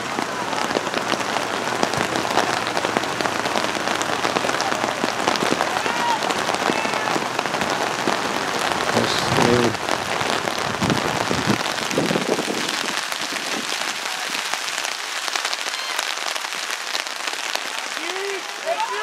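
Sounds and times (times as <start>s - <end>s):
voices calling out: 0.0s - 11.9s, 17.4s - 19.0s
heavy rain pouring: 0.0s - 19.0s.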